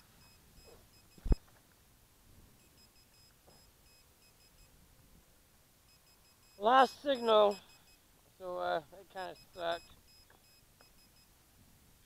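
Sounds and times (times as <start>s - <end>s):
high electronic beeping: 5.9s - 8.0s, 9.1s - 11.2s.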